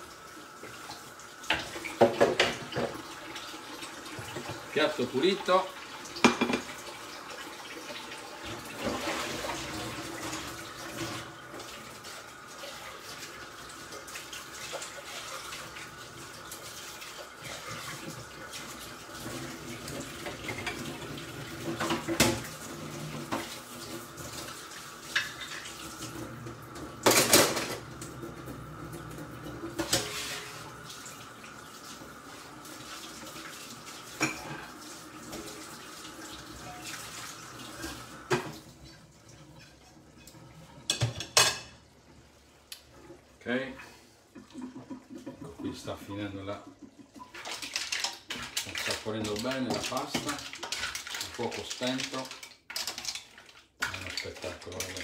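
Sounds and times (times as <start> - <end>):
tap running into sink: 1.5 - 3.1, 6.2 - 6.8.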